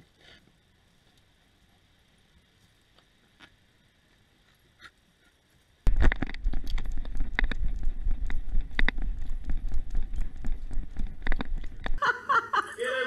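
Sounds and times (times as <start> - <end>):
low rumble: 5.9 - 12.0.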